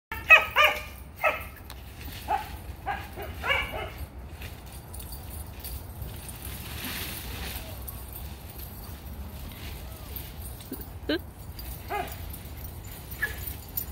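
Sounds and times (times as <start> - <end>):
dog barking high-pitched: 0.1 - 1.6, 2.3 - 4.0, 11.9 - 12.2.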